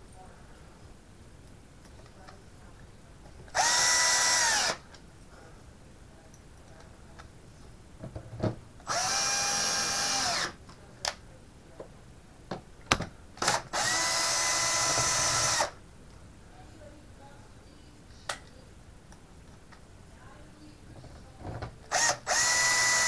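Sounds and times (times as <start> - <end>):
cordless drill motor whine: 3.6 - 4.8, 8.9 - 10.6, 13.4 - 15.7, 21.9 - 23.0.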